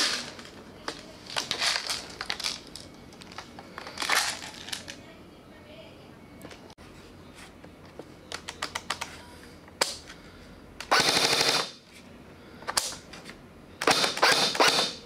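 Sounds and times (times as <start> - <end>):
airsoft rifle firing: 10.9 - 11.8, 13.8 - 15.0.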